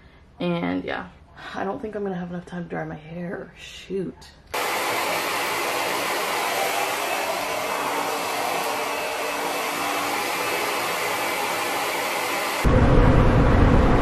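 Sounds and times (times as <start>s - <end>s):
hair dryer blowing: 4.6s - 12.8s.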